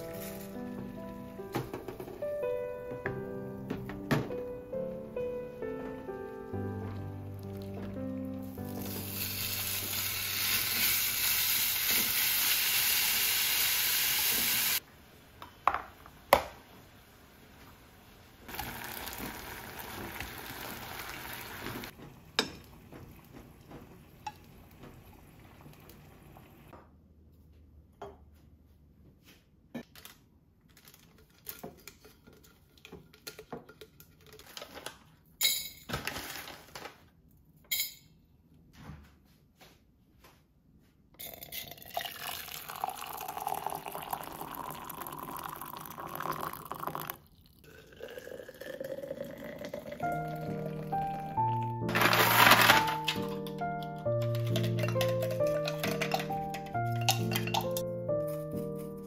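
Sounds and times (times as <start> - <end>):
meat sizzling in a frying pan: 8.7 - 14.8, 18.5 - 21.9
water pouring into a jar: 18.5 - 21.9, 41.2 - 50.9.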